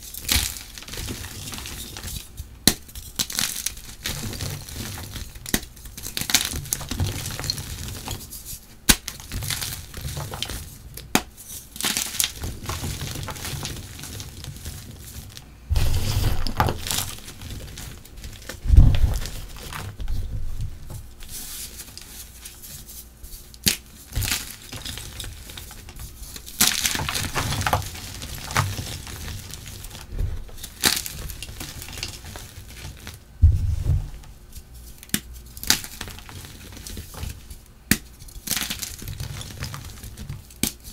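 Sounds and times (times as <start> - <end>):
chalk crunching and crumbling: 0.0 - 40.9
dull thumps: 15.7 - 17.2, 18.6 - 21.2, 33.4 - 34.5.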